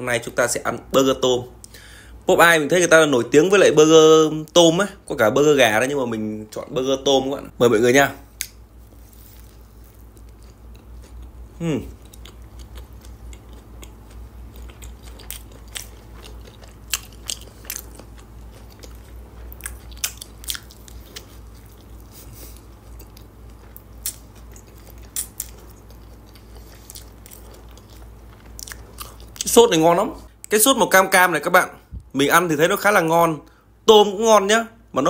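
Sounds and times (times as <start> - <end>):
person chewing crunchy food: 8.2 - 30.6.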